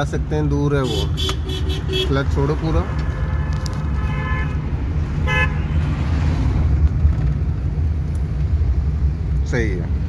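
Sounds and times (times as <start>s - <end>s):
car engine and road noise: 0.0s - 10.0s
vehicle horn honking: 0.8s - 2.2s, 4.0s - 4.6s, 5.2s - 5.7s.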